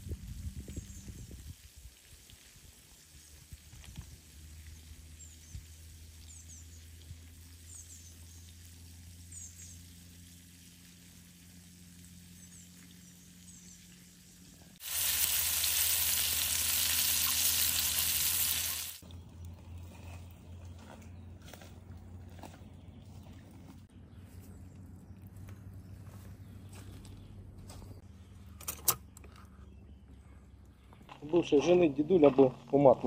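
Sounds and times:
fish frying sizzle: 0:14.8 - 0:19.0.

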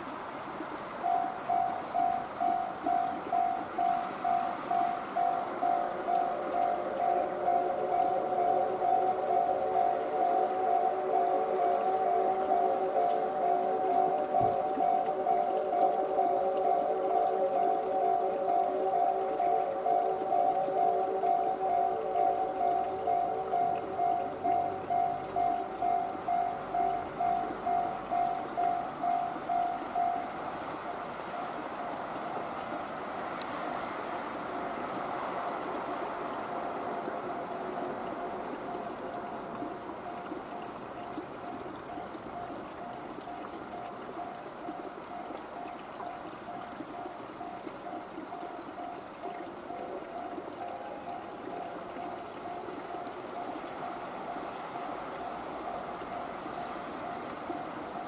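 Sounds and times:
steady rushing noise: 0:00.0 - 0:42.4
cars passing on road: 0:00.0 - 0:58.0
level crossing alarm bell ringing: 0:01.0 - 0:30.4.

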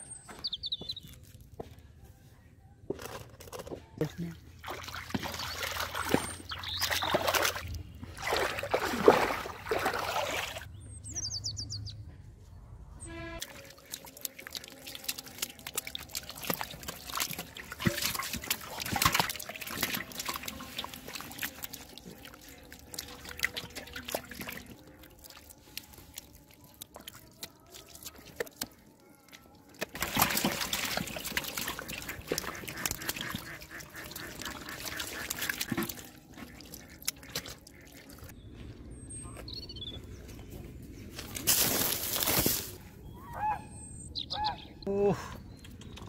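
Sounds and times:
fish flopping in muddy water: 0:04.6 - 0:10.7, 0:13.4 - 0:38.3.

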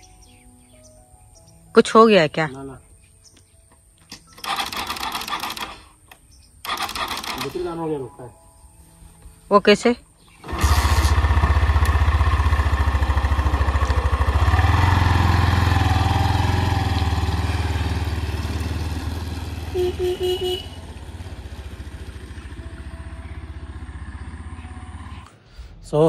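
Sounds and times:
motorcycle engine revving: 0:10.4 - 0:25.4
short horn beeps: 0:19.7 - 0:20.8.

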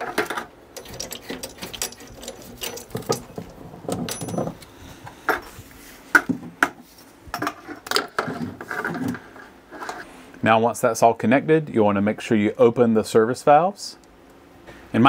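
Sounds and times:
metal hose fittings clinking: 0:00.2 - 0:04.7.

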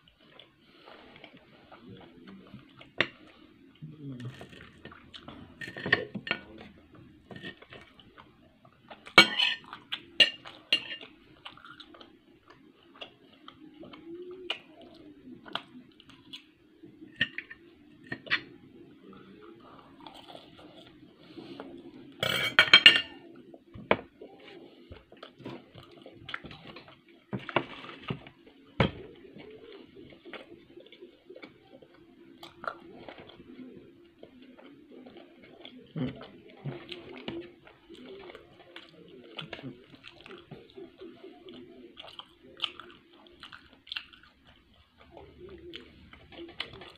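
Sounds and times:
cutlery clatter: 0:05.6 - 0:06.6, 0:09.1 - 0:11.2, 0:22.2 - 0:23.2
cutlery scraping on a plate: 0:09.2 - 0:11.1, 0:22.2 - 0:23.2.

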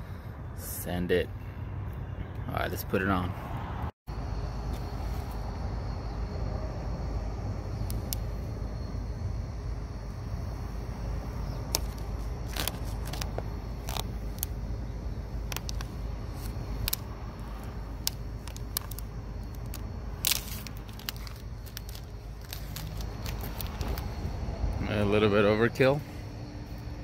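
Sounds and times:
low outdoor rumble: 0:00.0 - 0:27.0
plastic tape crinkling: 0:11.7 - 0:14.5, 0:15.5 - 0:24.1.

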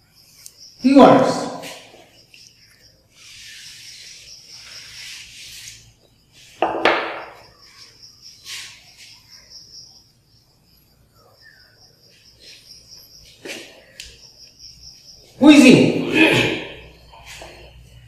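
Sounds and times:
high insect trill: 0:00.0 - 0:18.0
duster rubbing on chalkboard: 0:03.2 - 0:06.6
loud knock with ring: 0:06.6 - 0:07.4.

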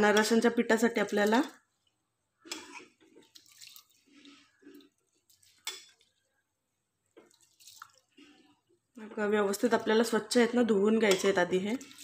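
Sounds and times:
rice sloshing in water: 0:03.1 - 0:06.3, 0:07.2 - 0:08.4, 0:11.7 - 0:12.0.

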